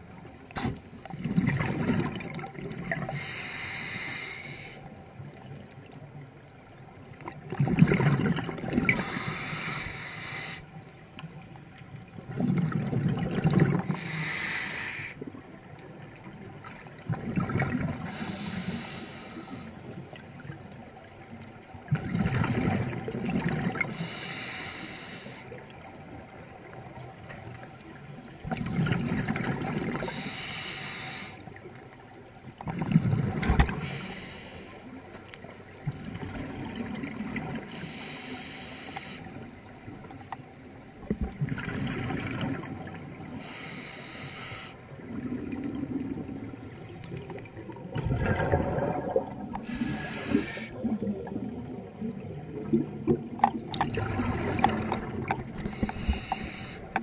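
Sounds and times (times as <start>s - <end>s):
exhaled bubbles gushing: 1.1s - 3.1s, 7.4s - 9.2s, 12.3s - 14.1s, 17.0s - 18.3s, 21.9s - 23.9s, 28.5s - 30.2s, 32.6s - 33.9s, 41.0s - 42.9s, 45.0s - 57.0s
regulator air hiss: 3.1s - 4.8s, 9.0s - 10.7s, 13.9s - 15.2s, 18.1s - 19.8s, 23.9s - 25.5s, 30.0s - 31.4s, 33.8s - 34.8s, 37.7s - 39.3s, 43.4s - 44.8s, 49.6s - 50.8s, 55.6s - 57.0s.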